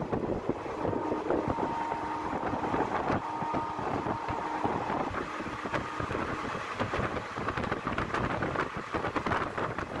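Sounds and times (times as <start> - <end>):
train wheels rumbling on rails: 0.0 - 10.0
wind rushing: 0.0 - 10.0.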